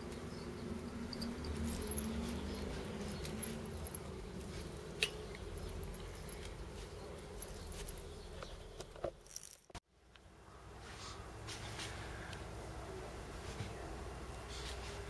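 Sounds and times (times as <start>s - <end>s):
cat collar tag jingling: 1.1s - 4.8s, 5.5s - 6.6s.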